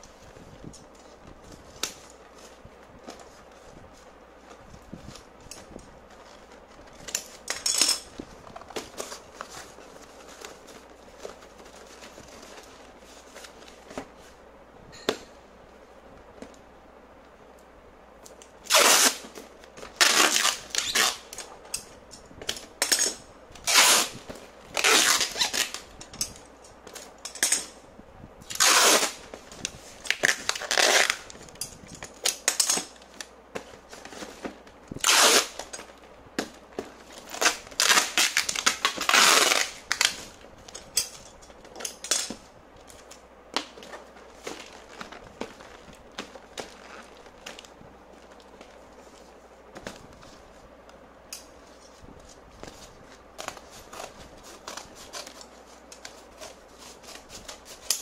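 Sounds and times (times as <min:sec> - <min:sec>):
cardboard rustling: 0:00.0 - 0:07.5, 0:08.1 - 0:14.4, 0:32.8 - 0:40.9, 0:41.6 - 0:58.0
packing tape ripping off roll: 0:18.6 - 0:27.7, 0:28.4 - 0:48.8.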